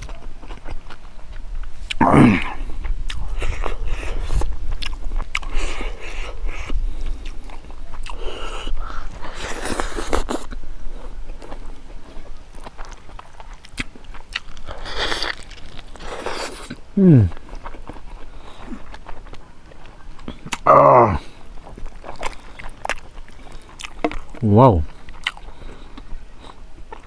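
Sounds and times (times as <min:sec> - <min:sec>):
wet chewing and mouth smacks: 0:00.0 - 0:27.0
short falling vocal sound: 0:17.0 - 0:17.3.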